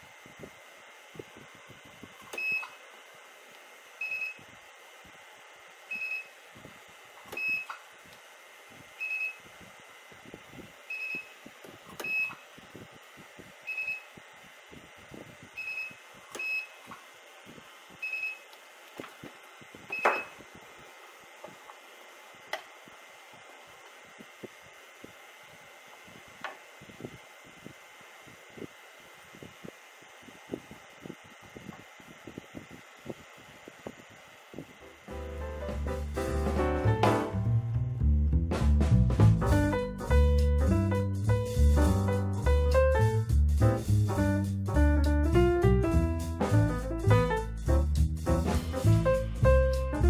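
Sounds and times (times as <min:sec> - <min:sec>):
spot welder snapping: 0:07.1 - 0:08.3, 0:17.9 - 0:21.8.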